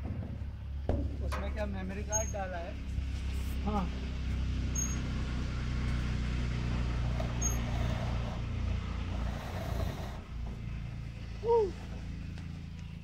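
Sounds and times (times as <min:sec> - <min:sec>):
faint high squeaks: 0:02.0 - 0:02.5, 0:04.7 - 0:05.1, 0:07.3 - 0:08.3
motor humming: 0:06.6 - 0:13.0.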